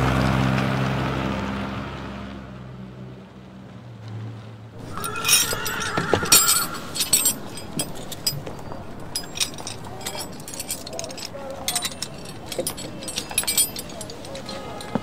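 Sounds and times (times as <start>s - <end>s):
car engine driving away: 0.0s - 9.1s
chain and padlock clinking: 4.8s - 15.0s.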